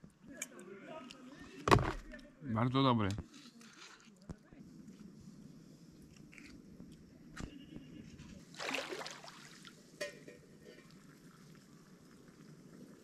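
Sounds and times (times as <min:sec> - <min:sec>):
feet splashing in water: 0:08.5 - 0:09.7
running water: 0:08.5 - 0:12.4.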